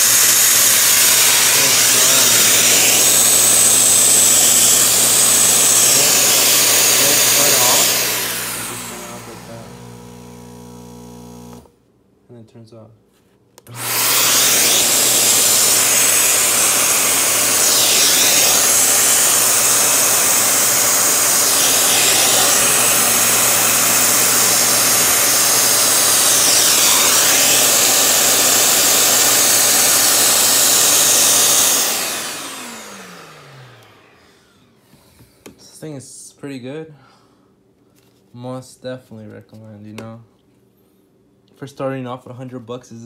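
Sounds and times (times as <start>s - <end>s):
vacuum motor suction rush: 0.0s - 11.7s, 13.6s - 34.5s.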